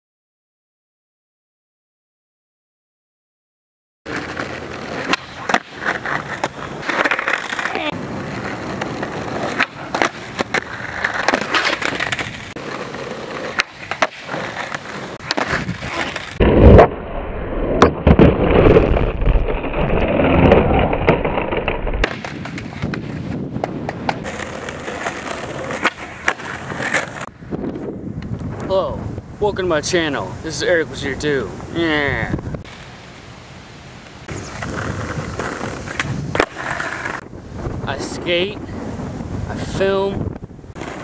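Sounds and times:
skateboard pops and clacks: 4.1 - 16.9, 17.8 - 27.3, 34.3 - 37.2
skateboard wheels rolling on concrete: 4.1 - 41.0.

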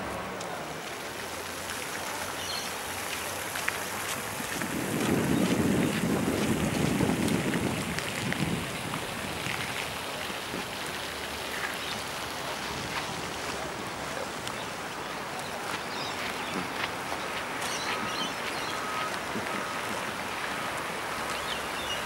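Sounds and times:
wind buffeting microphone: 4.2 - 10.8.

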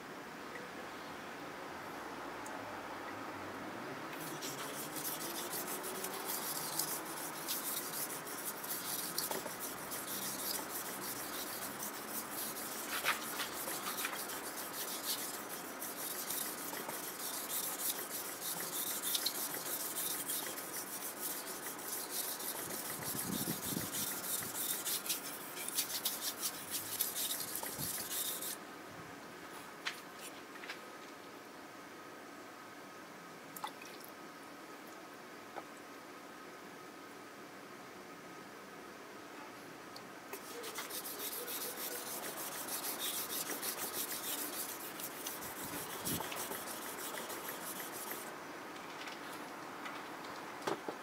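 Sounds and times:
knife scraping on whetstone: 4.2 - 28.6, 40.4 - 48.3.

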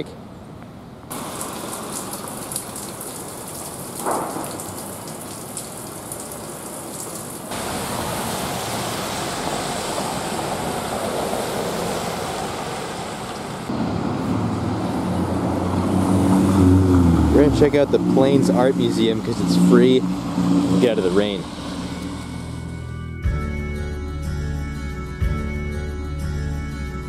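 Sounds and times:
rain on a wet street: 1.1 - 22.8
vehicle engine humming: 7.5 - 23.4.

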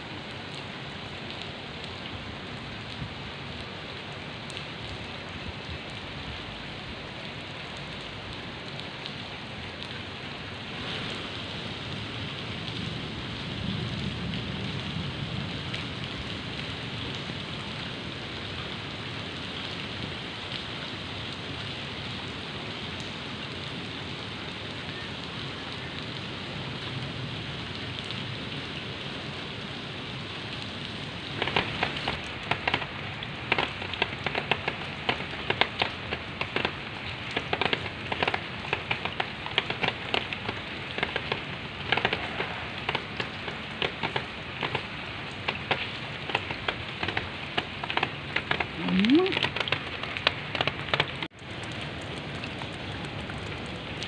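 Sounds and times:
steady rain falling: 0.0 - 54.0
raindrops tapping on umbrella: 30.6 - 54.0.

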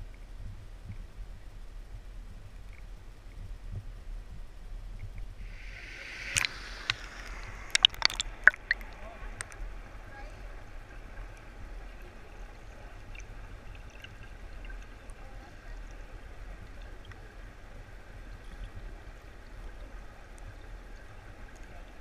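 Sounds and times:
faint ticks: 0.0 - 1.3, 1.9 - 5.3, 6.2 - 9.6
muffled underwater creek flow: 0.0 - 22.0.

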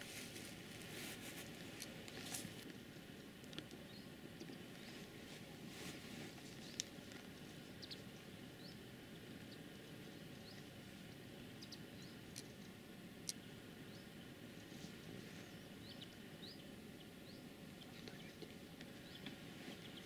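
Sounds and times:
low steady hiss: 0.0 - 20.0
small birds chirping: 3.5 - 5.2, 6.4 - 20.0.

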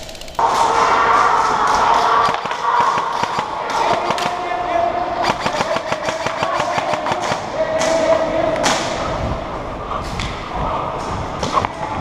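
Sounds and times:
airsoft rifle firing bursts: 1.9 - 4.5, 5.2 - 7.5.

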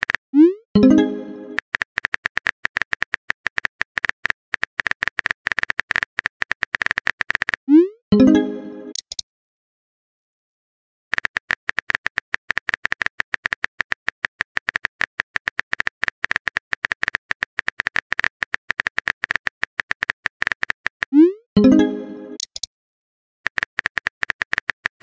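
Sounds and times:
phone keyboard typing clicks: 1.5 - 7.6, 8.9 - 9.2, 11.1 - 21.2, 22.4 - 22.7, 23.5 - 25.0.

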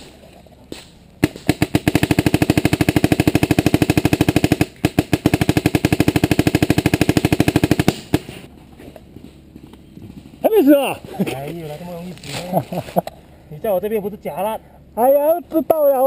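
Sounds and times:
paintball marker rapid firing: 1.2 - 8.5.

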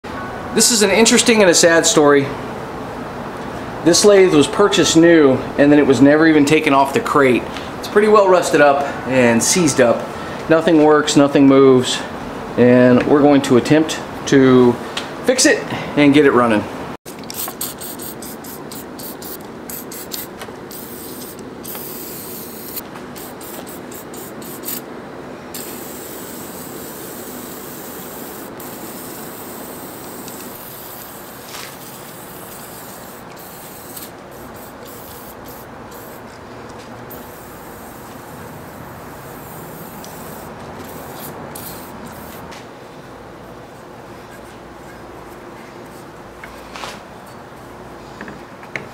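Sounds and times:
aerosol can spraying: 17.2 - 24.9, 25.6 - 36.3, 37.1 - 42.4.

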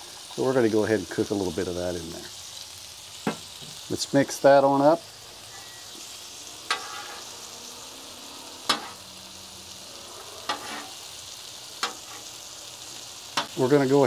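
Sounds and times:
food sizzling on griddle: 0.0 - 14.0
metal spatula striking griddle: 6.6 - 7.2, 8.6 - 9.0, 10.5 - 10.9, 11.8 - 12.3, 13.3 - 13.6.

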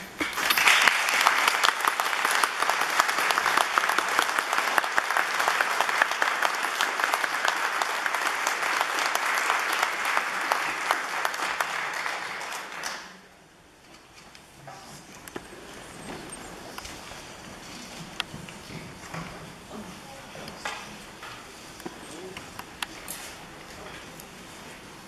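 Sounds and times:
audience applauding: 0.2 - 13.3.

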